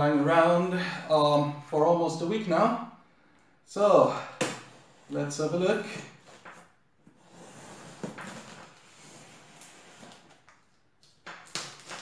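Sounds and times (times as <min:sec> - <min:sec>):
knife slitting packing tape: 0:11.4 - 0:12.0.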